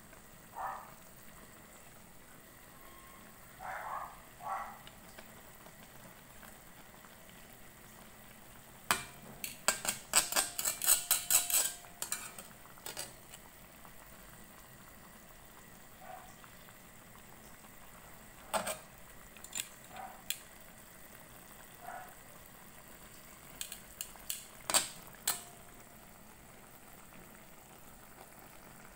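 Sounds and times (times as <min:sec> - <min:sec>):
food simmering with bubbling hiss: 0:00.0 - 0:28.9
utensil scraping and knocking pan: 0:08.9 - 0:13.4.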